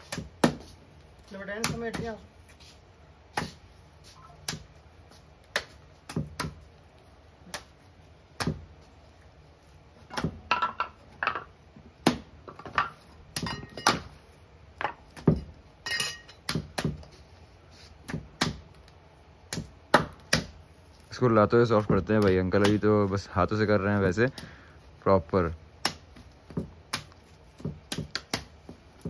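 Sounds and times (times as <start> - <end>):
wet clay slapping: 4.4 - 6.8, 7.4 - 8.8, 25.8 - 29.0.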